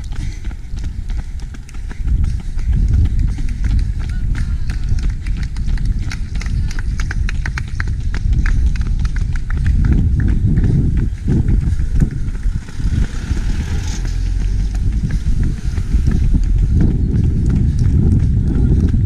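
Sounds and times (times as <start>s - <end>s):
running footsteps on tarmac: 0.0s - 19.0s
wind rumble on microphone: 0.0s - 19.0s
vehicle passing: 9.6s - 18.3s.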